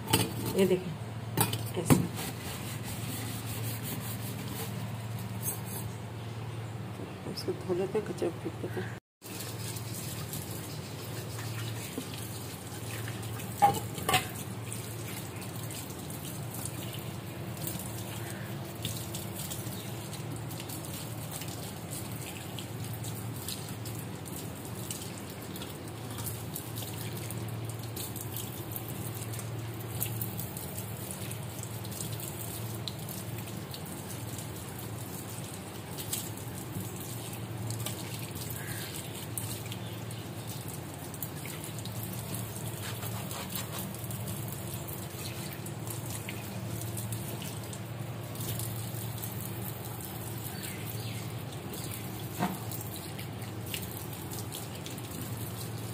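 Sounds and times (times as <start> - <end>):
small drips and knocks: 0.0 - 6.2, 9.2 - 55.9
hand rubbing sink basin: 1.9 - 5.8
tap water running into sink: 9.2 - 34.9, 51.6 - 55.9.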